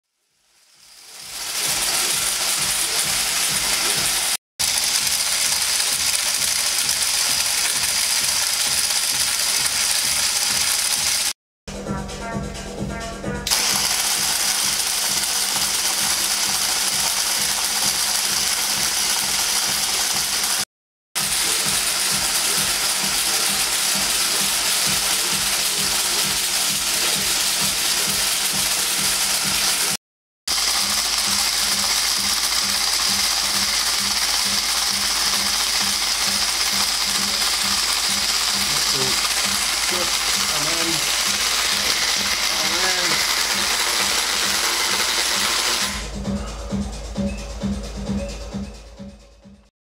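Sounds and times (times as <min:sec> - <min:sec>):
feeder mechanism clattering: 0:30.5 - 0:45.9.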